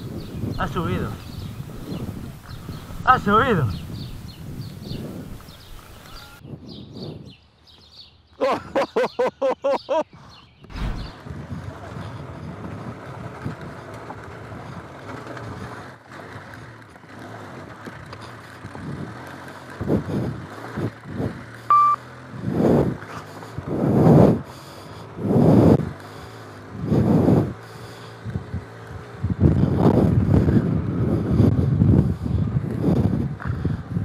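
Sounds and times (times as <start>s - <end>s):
motorcycle engine running: 0.0s - 6.1s, 10.8s - 34.0s
short beep: 21.7s - 22.0s.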